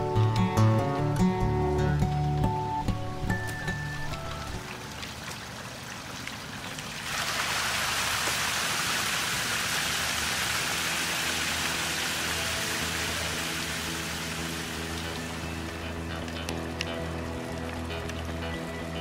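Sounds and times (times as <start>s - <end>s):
soft background music: 0.0s - 5.2s, 10.8s - 19.0s
water spray hissing: 7.1s - 15.6s.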